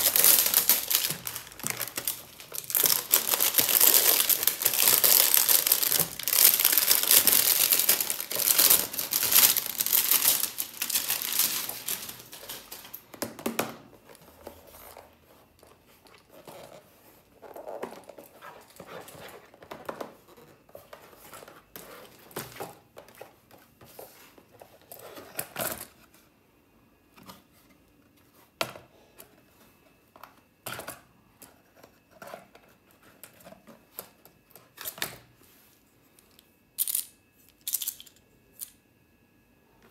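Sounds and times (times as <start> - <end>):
plastic wrap crinkling and tearing: 0.0 - 13.1.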